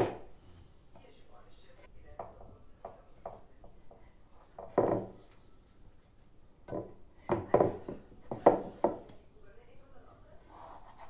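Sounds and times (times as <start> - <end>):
rubbing and knocking on wood: 2.1 - 5.4, 6.1 - 9.3.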